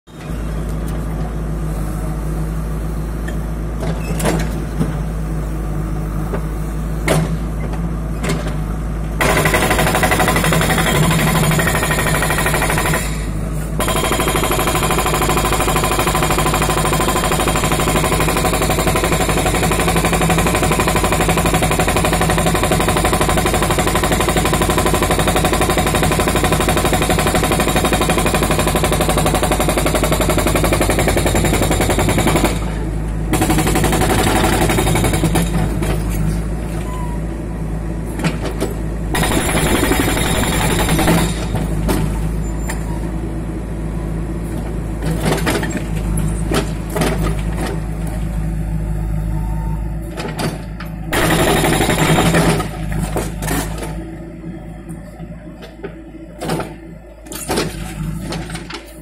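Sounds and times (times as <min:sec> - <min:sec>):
diesel engine running: 0:00.1 - 0:59.0
hydraulic breaker hammering concrete: 0:09.2 - 0:35.8, 0:39.2 - 0:41.8, 0:51.1 - 0:53.8.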